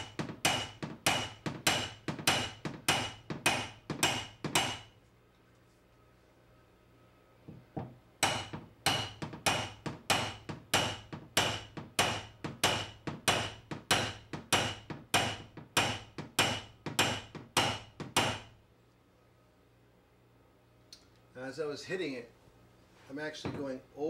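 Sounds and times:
hammer tapping metal tool: 0.0s - 4.9s, 7.5s - 18.5s.

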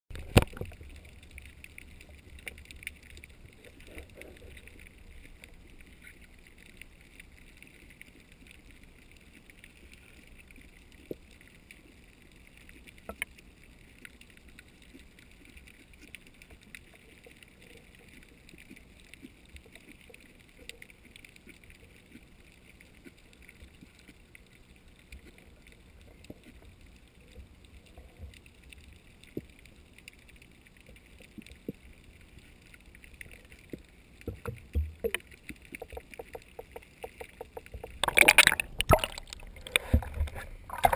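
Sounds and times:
sharp underwater clicks: 0.1s - 8.8s, 29.2s - 40.9s
underwater rumble and hiss: 0.1s - 40.9s.

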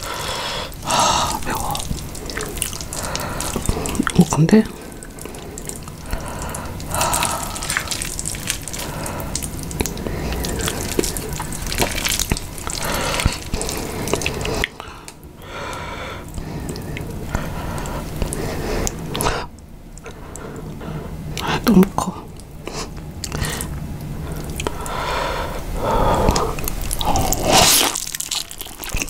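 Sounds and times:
noodle slurping: 0.0s - 14.8s, 25.9s - 29.0s
wet chewing of noodles: 0.0s - 21.6s, 22.3s - 29.0s.

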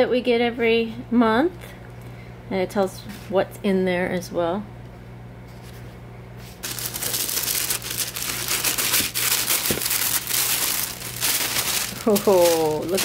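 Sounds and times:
low steady hum: 0.0s - 13.0s
tissue paper rustling: 6.4s - 13.0s.

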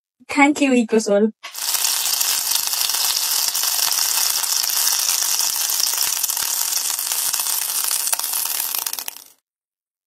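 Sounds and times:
vegetables sizzling in hot oil: 1.5s - 9.4s.

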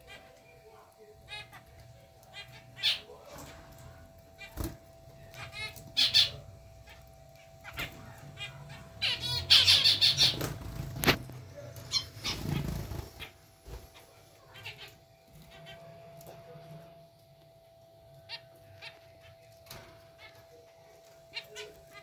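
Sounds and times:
faint steady hum: 0.0s - 22.0s
finches calling: 1.2s - 3.2s, 4.3s - 13.4s.

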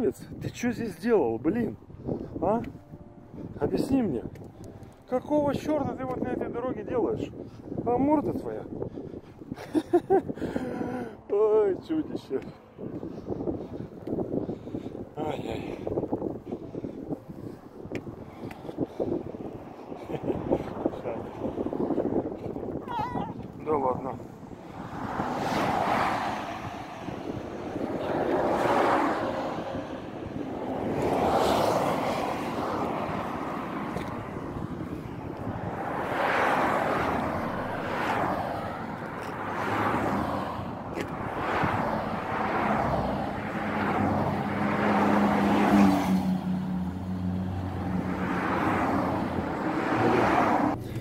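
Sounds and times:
vehicles passing at speed: 0.0s - 51.0s.

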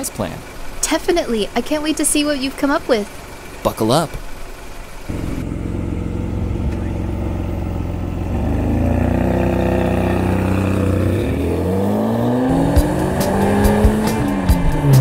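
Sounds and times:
sports car engine accelerating: 1.9s - 15.0s
ticking music beat: 12.4s - 15.0s.

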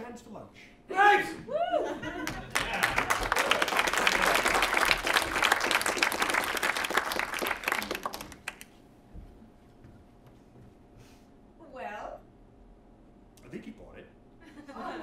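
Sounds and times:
audience applauding: 2.2s - 8.7s.

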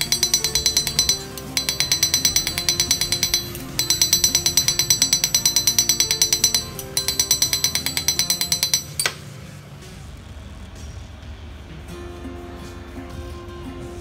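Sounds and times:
small hammer tapping on steel: 0.0s - 9.3s
background music: 0.0s - 14.0s.

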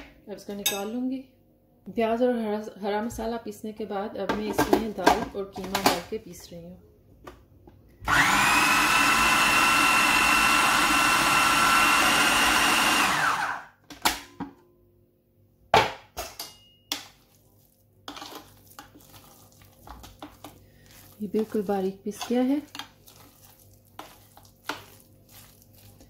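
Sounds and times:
electric food chopper whining: 8.0s - 13.8s.

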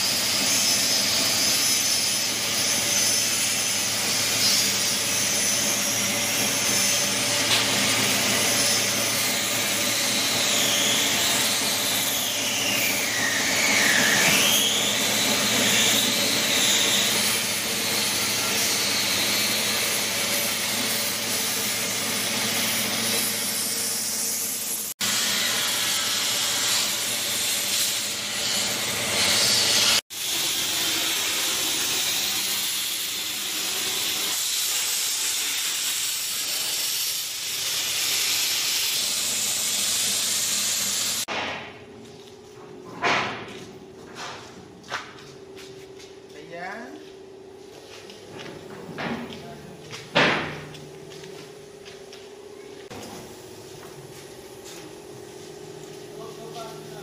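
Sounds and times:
machinery hum: 41.6s - 57.0s.

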